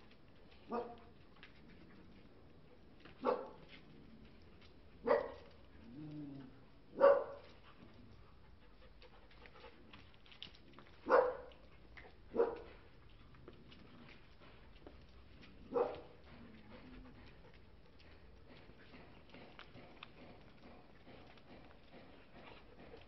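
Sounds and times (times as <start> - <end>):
dogs barking: 0.7 - 1.0, 3.2 - 3.6, 5.0 - 5.5, 6.9 - 7.6, 11.0 - 11.6, 12.3 - 12.8, 15.6 - 16.2
dog growling: 5.7 - 6.9.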